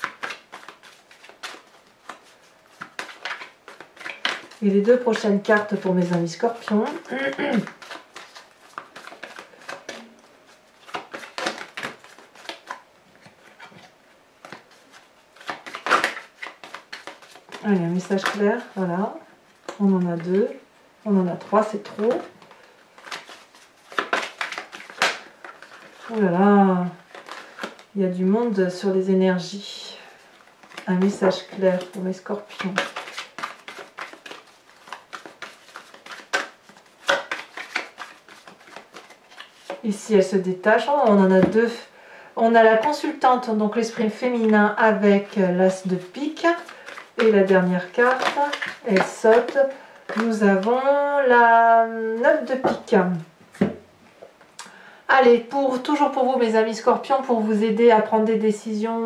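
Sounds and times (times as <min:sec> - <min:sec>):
cards being shuffled: 0:00.0 - 0:18.8, 0:21.3 - 0:26.4, 0:27.1 - 0:27.9, 0:30.6 - 0:39.9, 0:43.9 - 0:50.9.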